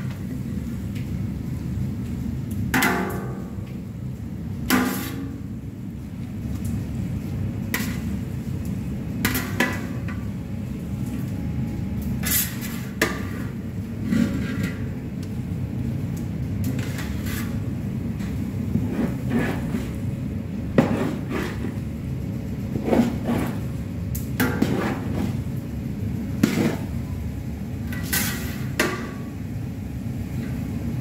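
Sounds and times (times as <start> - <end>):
metal spatula scraping steel pan: 12.2 - 14.8, 16.8 - 17.6, 18.7 - 20.0, 20.8 - 21.8, 22.7 - 23.7, 24.4 - 25.4, 26.4 - 26.9, 27.9 - 28.8.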